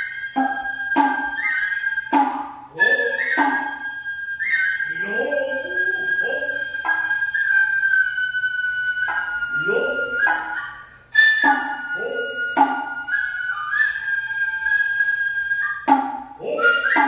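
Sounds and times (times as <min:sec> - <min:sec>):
bamboo flute melody: 0:00.0 - 0:17.0
hand drum strokes: 0:11.5 - 0:13.0.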